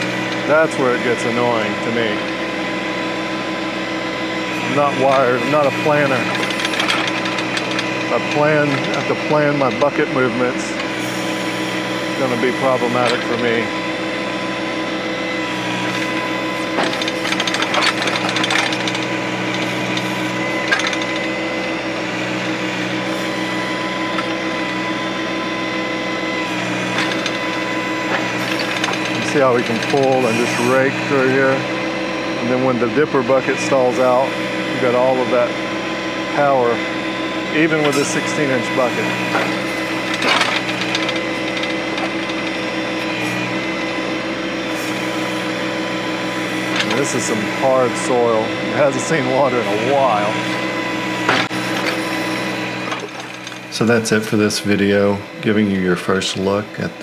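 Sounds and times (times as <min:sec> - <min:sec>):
hydraulic whine: 0:00.0 - 0:57.0
tractor diesel engine running: 0:00.0 - 0:57.0.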